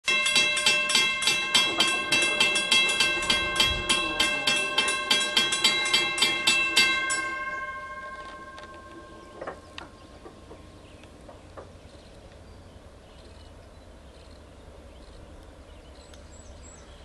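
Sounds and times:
railroad crossing bell ringing: 0.0 - 11.0.

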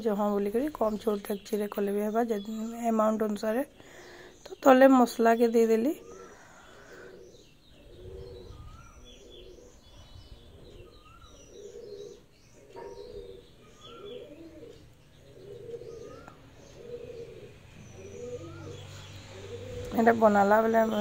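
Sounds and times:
bird cooing: 6.0 - 21.0.

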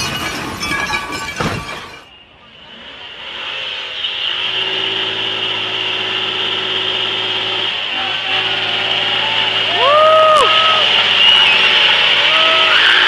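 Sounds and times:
car engine revving high: 2.5 - 13.0
tyres squealing on concrete: 5.5 - 13.0.

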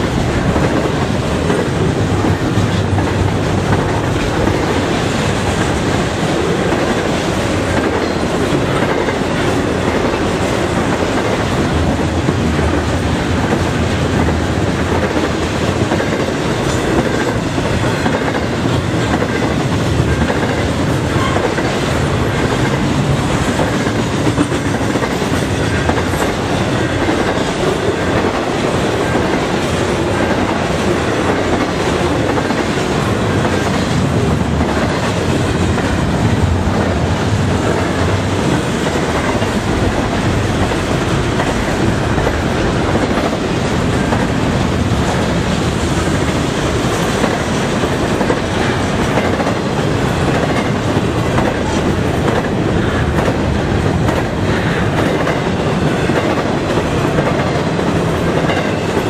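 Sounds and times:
steel wheels rolling on rail: 0.0 - 59.0.

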